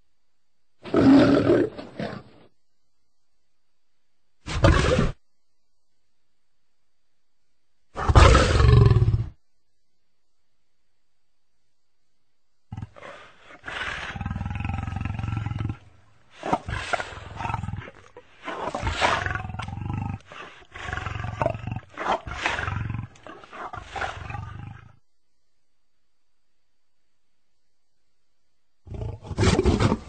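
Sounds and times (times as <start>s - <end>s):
lion roaring: 0.8s - 2.4s, 4.5s - 5.2s, 8.0s - 9.4s, 12.7s - 25.0s, 28.9s - 30.0s.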